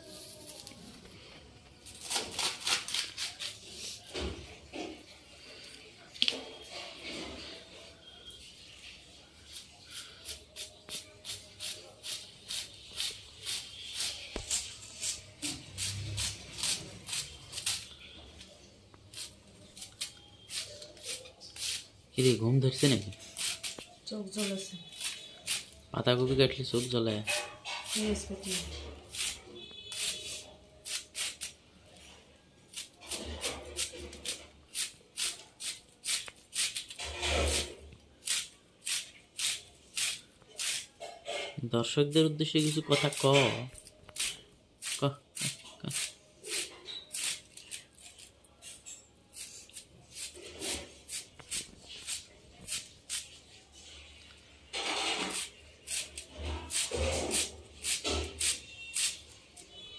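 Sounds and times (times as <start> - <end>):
knife slicing cabbage: 9.5 - 17.9, 19.1 - 23.8, 55.2 - 59.2.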